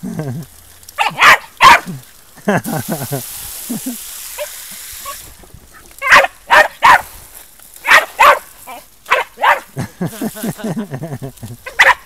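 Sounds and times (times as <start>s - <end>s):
dog barking: 1.0s - 2.0s, 6.0s - 7.1s, 7.8s - 9.7s, 11.6s - 12.0s.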